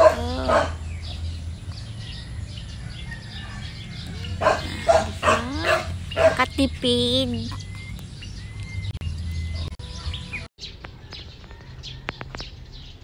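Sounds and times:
dog barking: 0.0s - 0.9s, 4.3s - 6.6s.

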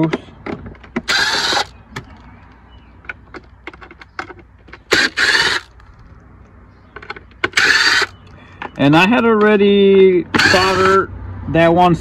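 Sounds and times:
clicks of plastic housing and screws: 0.0s - 6.2s
cordless driver spinning screws: 1.0s - 2.6s, 4.9s - 6.1s, 7.5s - 8.3s, 10.4s - 11.0s.

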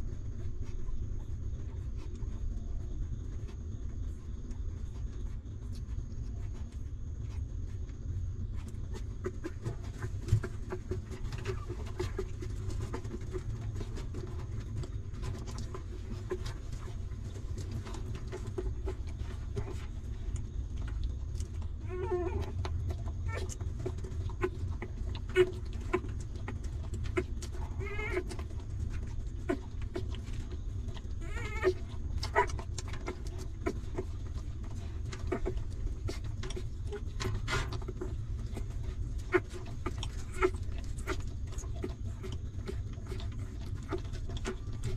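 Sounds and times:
steady low rumble: 0.0s - 44.9s
small clicks and rustles: 0.3s - 44.9s
puppies whimpering: 21.8s - 44.9s.

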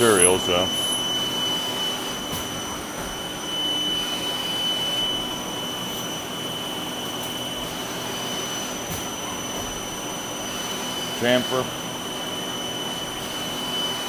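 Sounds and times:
lathe spindle high whine: 0.0s - 14.0s.

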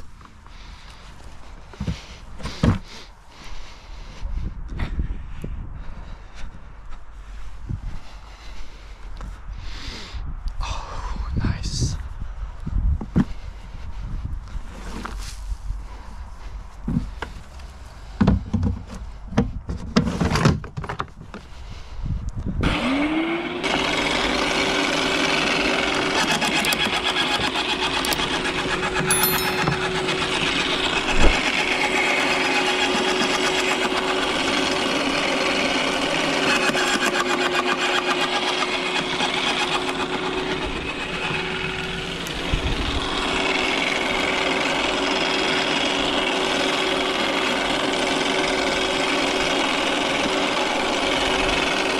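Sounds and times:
knocks and rustles: 18.1s - 21.4s
garden shredder motor whine: 22.6s - 51.9s
shredder grinding branches: 22.6s - 51.9s.

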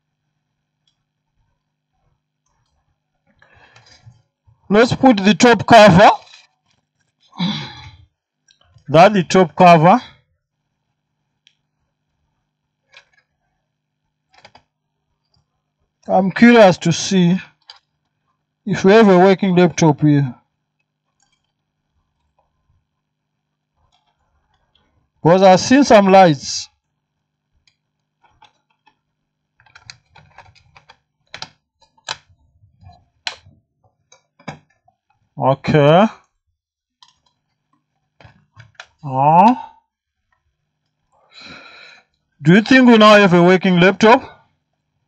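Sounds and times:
laptop keys clicking: 14.3s - 15.5s, 27.6s - 32.3s, 37.0s - 39.0s.

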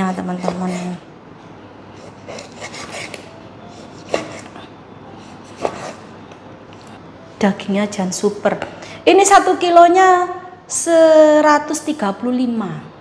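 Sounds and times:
knife slicing meat: 2.0s - 4.6s.

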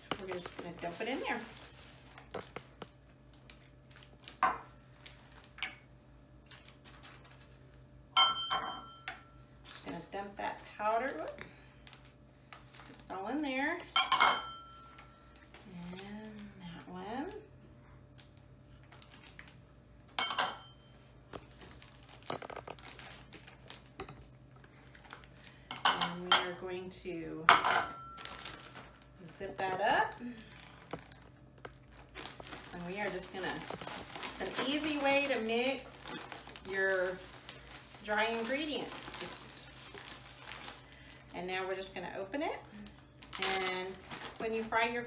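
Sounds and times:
plastic bag rustling: 0.0s - 5.6s, 6.4s - 7.6s, 11.9s - 13.1s, 18.7s - 19.6s, 21.4s - 25.6s, 28.1s - 29.4s, 30.4s - 41.8s, 43.2s - 45.0s.

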